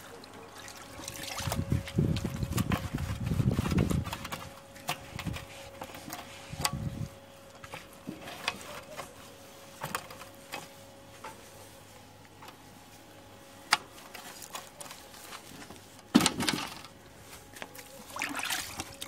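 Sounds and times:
cloth rubbing barbecue lid: 0:01.6 - 0:16.2.

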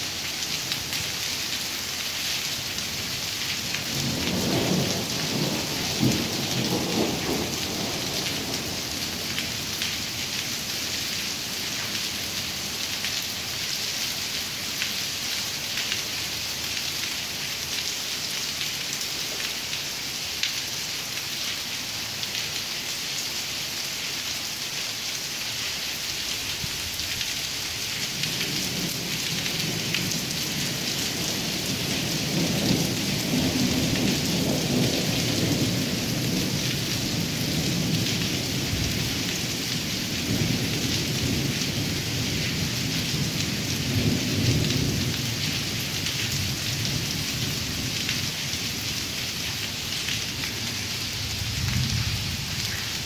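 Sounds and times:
rain hissing on wet pavement: 0:00.0 - 0:53.0
rolling thunder: 0:04.0 - 0:08.9.

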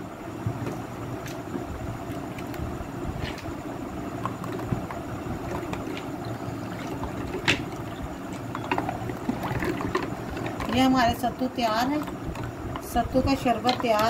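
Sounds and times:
liquid sloshing in a metal pot: 0:00.7 - 0:14.0
ice and ladle clicking on metal: 0:06.8 - 0:14.0.

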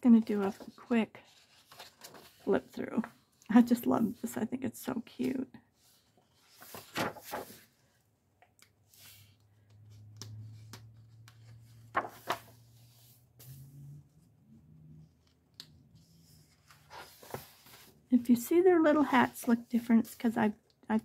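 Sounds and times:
paper pages rustling: 0:00.2 - 0:03.3, 0:05.9 - 0:07.8, 0:10.1 - 0:13.6, 0:15.6 - 0:18.0.

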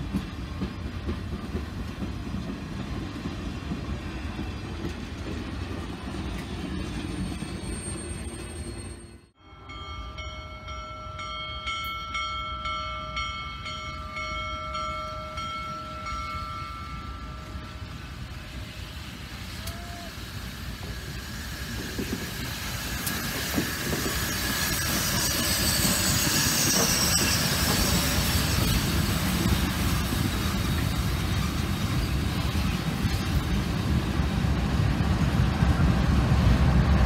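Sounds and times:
steam hissing: 0:17.8 - 0:35.5
steam locomotive whistle: 0:18.6 - 0:22.2.

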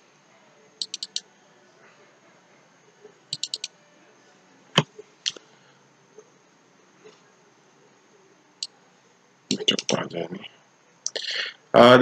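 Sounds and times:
mouse and keyboard clicks: 0:00.8 - 0:01.2, 0:03.4 - 0:03.7.

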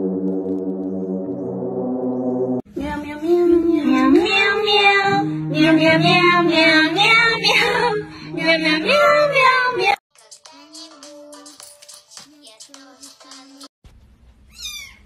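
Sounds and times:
steady horn-like tone: 0:00.0 - 0:03.9
musical accompaniment: 0:00.0 - 0:08.9.

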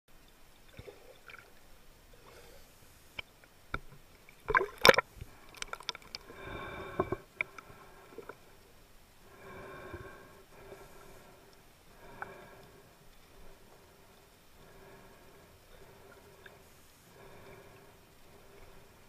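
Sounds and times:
gurgling water: 0:00.1 - 0:02.6, 0:03.2 - 0:19.0
underwater clicks and knocks: 0:03.2 - 0:06.2, 0:06.9 - 0:08.4.

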